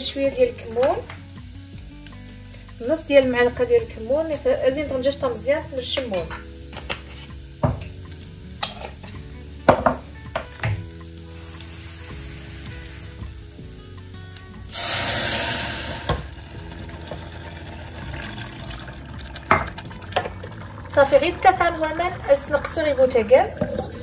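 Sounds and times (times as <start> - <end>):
rice sizzling in oil: 0.0 - 24.0
wooden spoon knocking on pan: 7.6 - 7.9, 9.7 - 10.8
water rushing into hot pan: 14.7 - 24.0.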